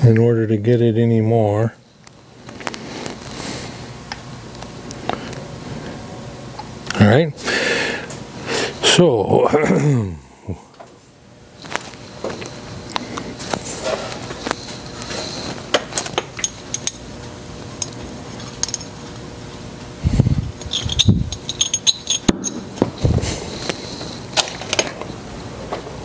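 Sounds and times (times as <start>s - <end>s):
metal tools clinking: 17.8s - 19.0s, 20.6s - 22.6s.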